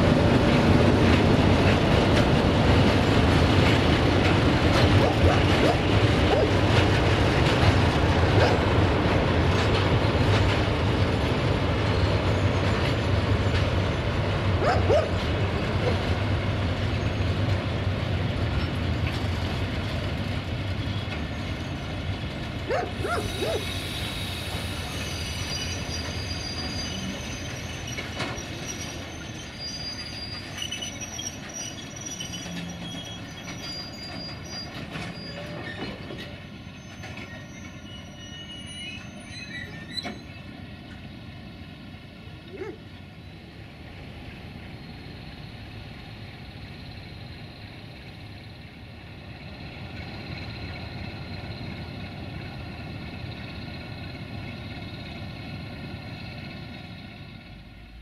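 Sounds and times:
train rumbling: 0.0 - 58.0
wheels clicking over rail joints: 0.2 - 21.6, 30.4 - 37.8
train wheels squealing: 9.4 - 17.6, 20.5 - 41.0.

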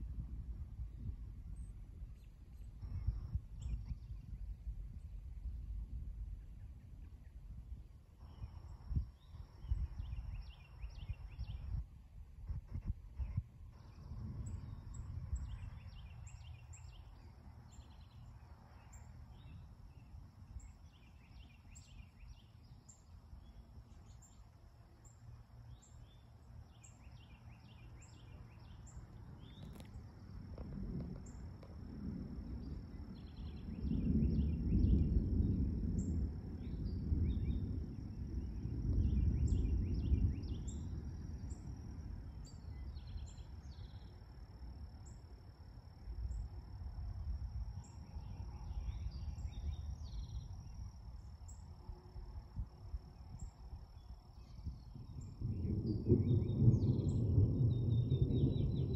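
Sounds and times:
low rolling thunder: 13.8 - 18.4, 29.4 - 58.9.

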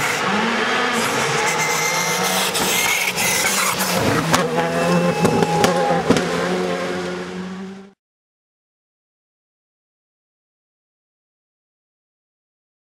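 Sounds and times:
rally car engine passing: 0.0 - 8.0.

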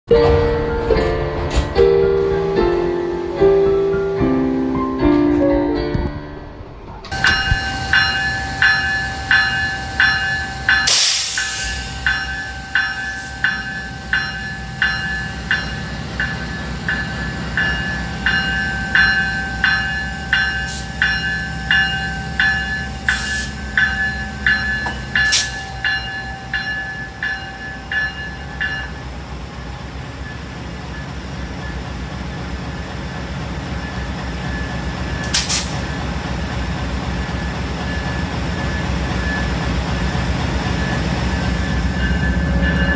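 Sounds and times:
locomotive bell ringing: 7.1 - 42.9
loud hiss: 7.2 - 15.5.

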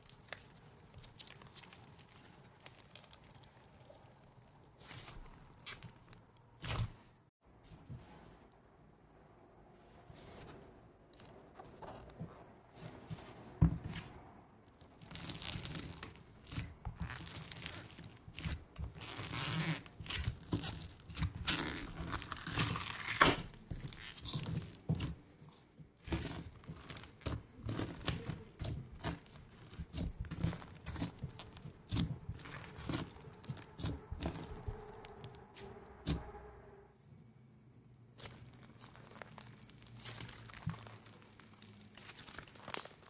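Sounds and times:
slime crackling and popping: 0.0 - 6.8, 14.8 - 25.2, 26.0 - 35.3, 38.2 - 43.0.

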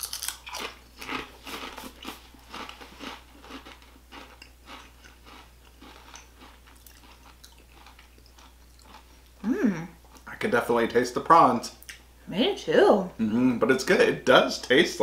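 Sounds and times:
potato chips crunching: 0.0 - 9.1
quiet chewing: 0.0 - 9.4.

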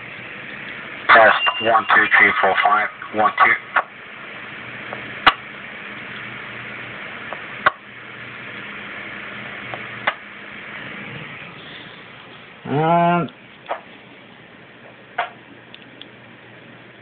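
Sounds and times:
radio static hiss: 0.0 - 13.1.

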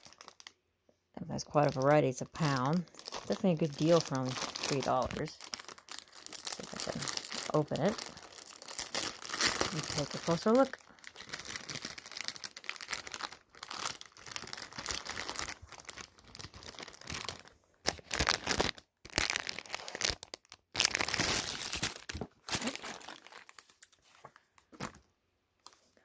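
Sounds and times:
plastic wrapping crinkling and tearing: 0.0 - 0.6, 1.2 - 26.0.

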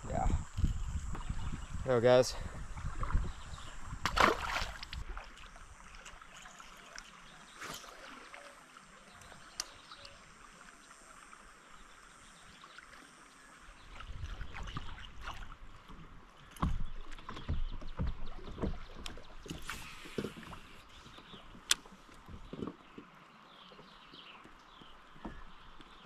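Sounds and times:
river water hissing: 0.0 - 14.0, 19.5 - 22.1
paddle splashes: 0.6 - 26.0.

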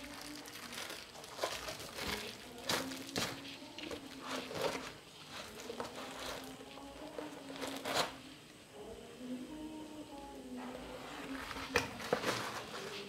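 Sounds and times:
bubble wrap crinkling: 0.0 - 8.3, 10.8 - 13.0
cardboard box rustling: 11.3 - 13.0.

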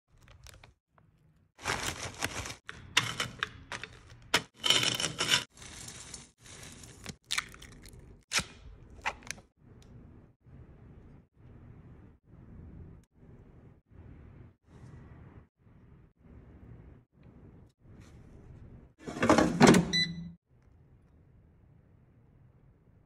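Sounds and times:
plastic bags crinkling: 1.6 - 4.2, 4.9 - 8.0
chips being crushed: 1.6 - 9.4.

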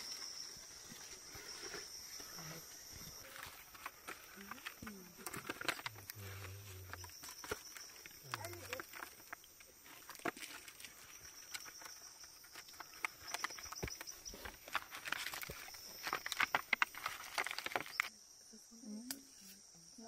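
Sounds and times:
high insect chirring: 0.0 - 20.0
leaf and resin crackling in fingers: 3.1 - 18.1.

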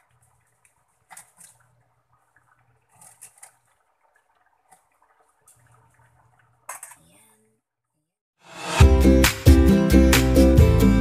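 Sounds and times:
soft liquid splashes: 0.0 - 7.1.

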